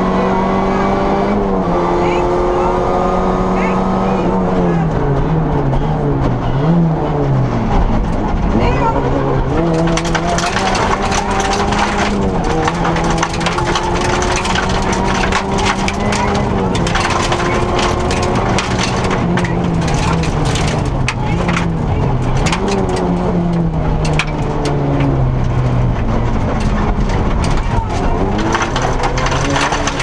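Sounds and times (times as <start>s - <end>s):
rally car engine revving: 0.0s - 30.0s
gravel clattering against underbody: 9.6s - 30.0s.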